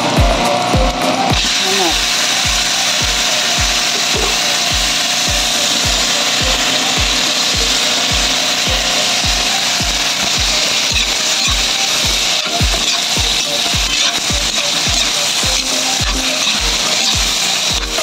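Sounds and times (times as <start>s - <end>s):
background music with beat: 0.0s - 18.0s
chicken sizzling in wok: 1.4s - 18.0s
spatula scraping pan: 9.0s - 18.0s.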